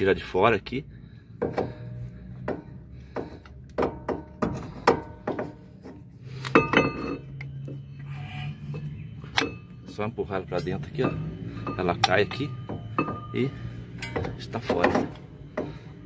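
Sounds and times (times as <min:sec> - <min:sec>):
metal brake parts clinking: 0:02.6 - 0:07.7, 0:08.7 - 0:15.8.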